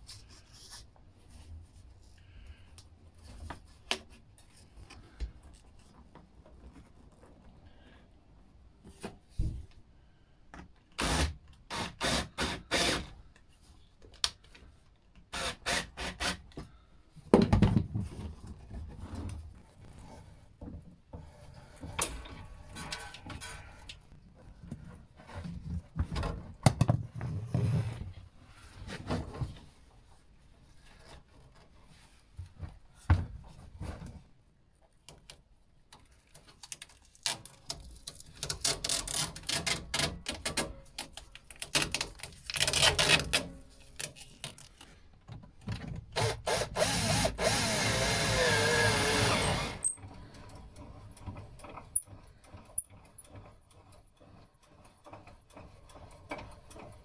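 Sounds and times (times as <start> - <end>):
plastic hose rubbing and scraping: 36.1 - 45.0
cordless drill running: 46.2 - 49.9.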